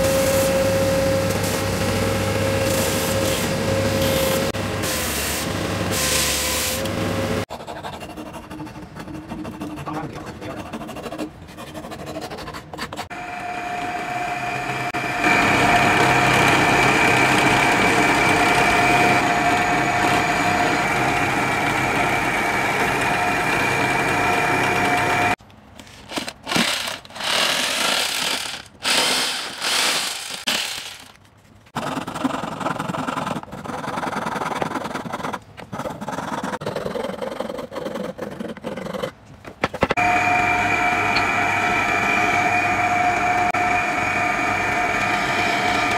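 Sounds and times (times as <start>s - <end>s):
belt sander running: 13.1s - 25.4s, 39.9s - 45.9s
drill press motor whining: 13.1s - 25.4s, 40.0s - 45.9s.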